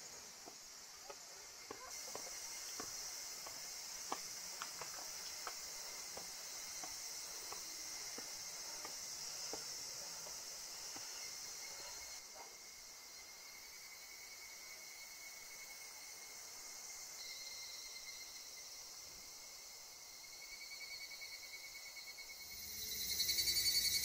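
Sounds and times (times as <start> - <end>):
cicadas shrilling: 0.0 - 24.0
footsteps on stone steps: 0.3 - 11.5.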